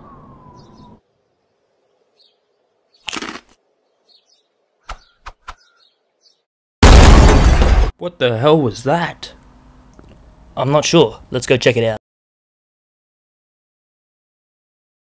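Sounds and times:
faint birds chirping: 0:00.0 - 0:06.5.

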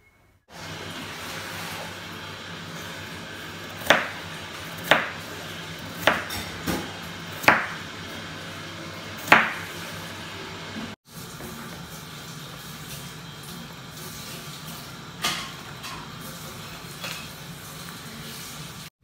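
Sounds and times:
knife chopping on cutting board: 0:03.8 - 0:07.9, 0:09.2 - 0:09.8.

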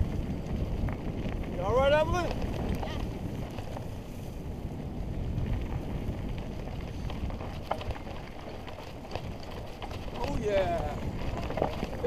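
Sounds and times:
wind buffeting microphone: 0:00.0 - 0:12.0
bike clicks and knocks: 0:05.5 - 0:12.0.

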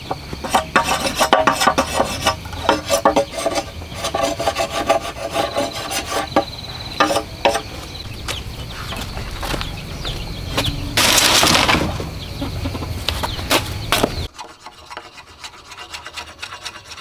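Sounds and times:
machete scraping bamboo: 0:00.0 - 0:07.7, 0:11.0 - 0:12.0, 0:13.5 - 0:17.0.

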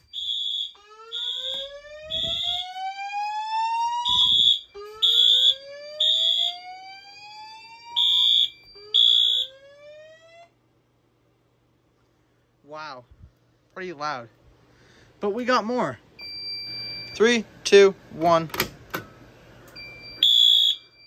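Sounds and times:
whoop evacuation tone: 0:00.0 - 0:06.9
high-pitched fire alarm beeps: 0:00.0 - 0:09.6, 0:16.2 - 0:17.2, 0:19.8 - 0:21.0.

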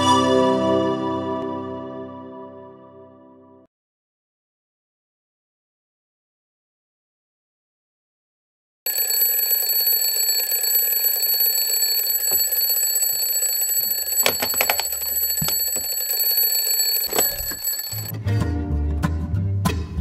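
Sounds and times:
alarm clock bells ringing: 0:08.9 - 0:18.1
hand knocking clock: 0:12.2 - 0:18.1.

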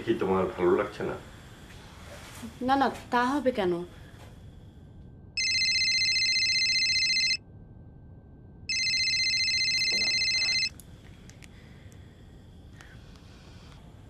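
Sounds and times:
telephone ringing: 0:05.4 - 0:07.4, 0:08.7 - 0:10.7.

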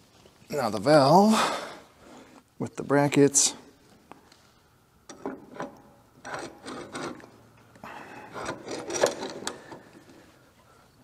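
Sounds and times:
metal parts clinking: 0:08.3 - 0:09.8.

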